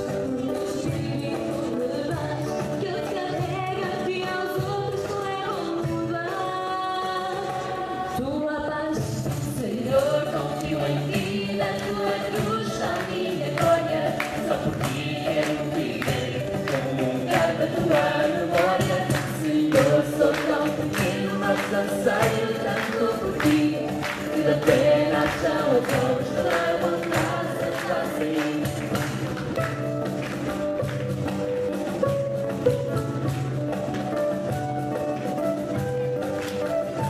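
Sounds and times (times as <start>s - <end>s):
acoustic guitars: 0.0s - 37.0s
hand percussion beat: 9.0s - 37.0s
voices singing together: 9.5s - 29.5s.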